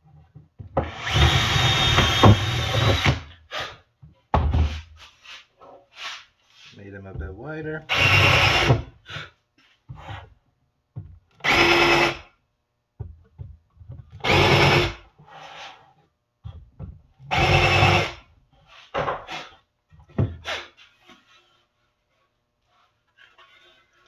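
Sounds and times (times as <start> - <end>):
cordless drill boring into wood: 0.8 - 3.3, 7.9 - 8.8, 11.4 - 12.2, 14.2 - 15.0, 17.3 - 18.2
knocks and handling of wood: 4.0 - 5.8, 10.9 - 11.4, 12.9 - 14.2, 16.4 - 17.2, 18.7 - 22.2.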